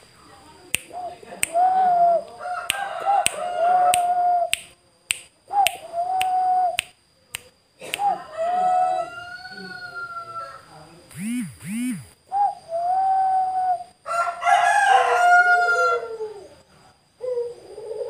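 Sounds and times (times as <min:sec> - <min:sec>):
dove cooing: 0:00.9 - 0:04.5, 0:05.5 - 0:06.8, 0:12.0 - 0:13.9, 0:15.0 - 0:16.6, 0:17.2 - 0:18.0
sharp clicks: 0:02.7 - 0:07.5, 0:11.1 - 0:12.2.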